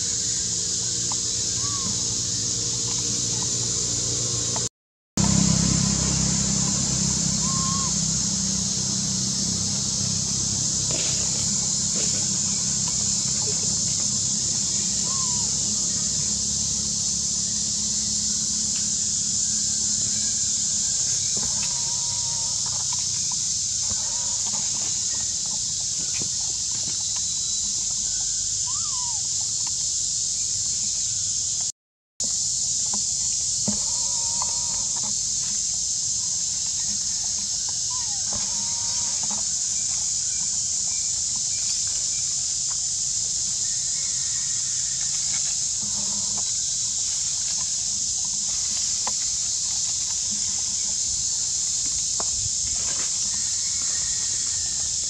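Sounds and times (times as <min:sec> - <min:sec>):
high-pitched forest drone: 0:00.0 - 0:29.7, 0:32.3 - 0:55.0
faint short animal calls: 0:07.3 - 0:08.0, 0:14.6 - 0:15.9, 0:28.6 - 0:29.3, 0:33.8 - 0:35.0.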